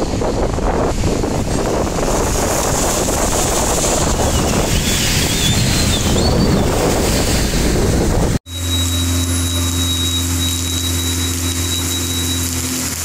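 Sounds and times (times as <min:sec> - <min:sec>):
wind buffeting microphone: 0:00.0 - 0:08.5
rain hissing: 0:00.0 - 0:13.0.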